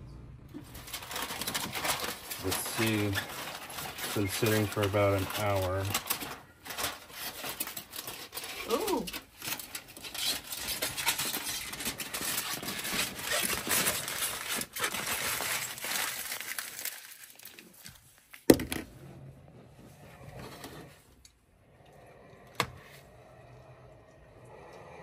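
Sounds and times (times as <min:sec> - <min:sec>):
aluminium foil crinkling: 0:00.6 - 0:18.5.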